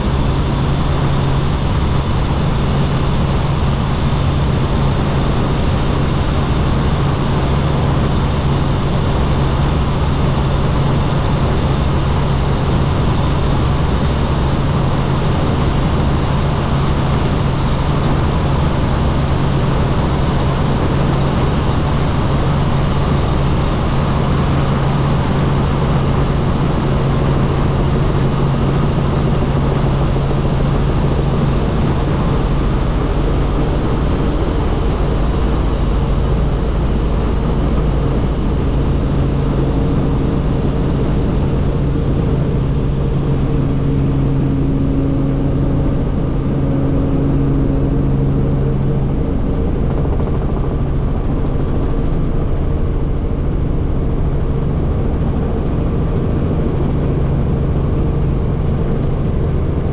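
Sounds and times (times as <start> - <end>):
helicopter rotor and engine drone: 0.0 - 59.9.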